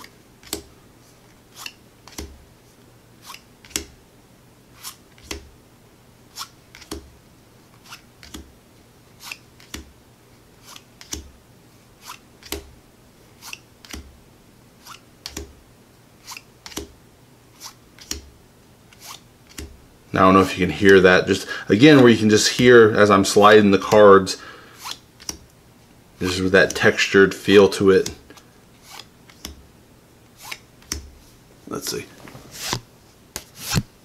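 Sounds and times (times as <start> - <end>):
cards sliding off a deck: 3.2 - 3.9, 4.8 - 5.4, 17.6 - 18.2, 18.9 - 19.7, 24.8 - 25.4, 28.0 - 29.6, 30.4 - 31.0, 32.2 - 34.0.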